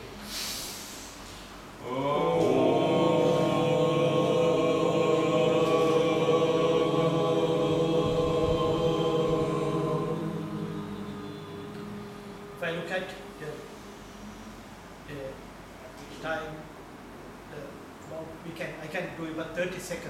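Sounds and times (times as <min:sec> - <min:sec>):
man chanting a steady tone: 0:01.8 - 0:15.4.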